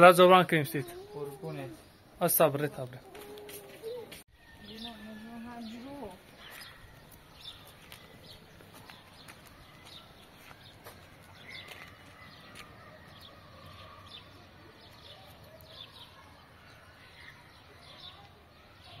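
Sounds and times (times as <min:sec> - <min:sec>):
birds chirping: 0:00.0 - 0:19.0.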